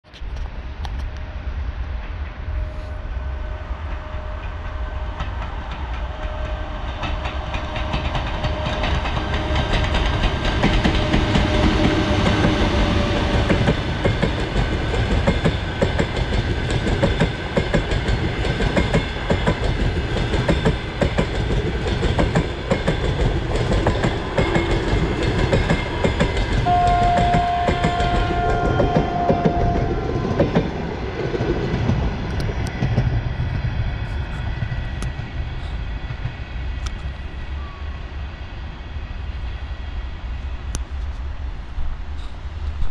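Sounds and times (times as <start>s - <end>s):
train rolling past: 0.1s - 42.9s.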